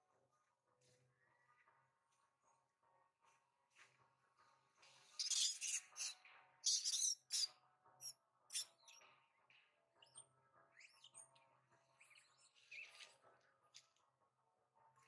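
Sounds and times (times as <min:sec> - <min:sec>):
thin animal chirps: 0:05.2 - 0:07.5.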